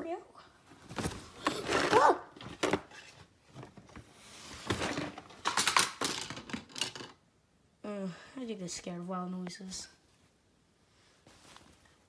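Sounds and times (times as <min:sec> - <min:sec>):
plastic toys clattering: 0:04.6 - 0:07.2.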